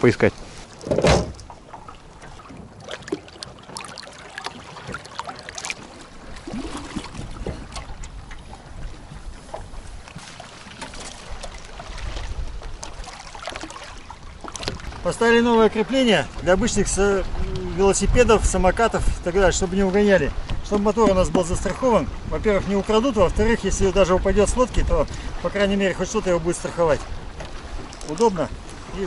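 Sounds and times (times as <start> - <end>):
outboard motor knocks and clatter: 0.0 - 29.0
waves lapping against boat hull: 0.0 - 29.0
wind on microphone: 5.8 - 10.2, 11.2 - 29.0.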